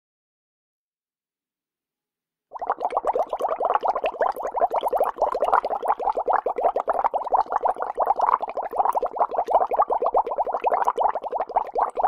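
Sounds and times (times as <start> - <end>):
bubbling through a straw: 2.5 - 12.0.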